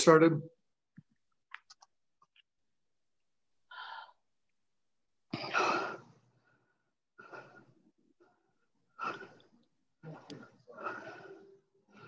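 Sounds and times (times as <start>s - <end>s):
person breathing hard: 3.7s - 4.2s, 5.4s - 12.0s.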